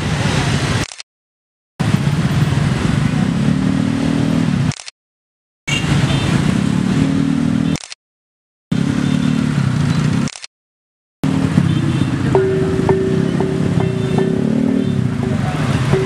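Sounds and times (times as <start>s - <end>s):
motor scooter engines in traffic: 0.0s - 0.9s, 1.8s - 4.9s, 5.7s - 7.9s, 8.7s - 10.5s, 11.2s - 16.0s.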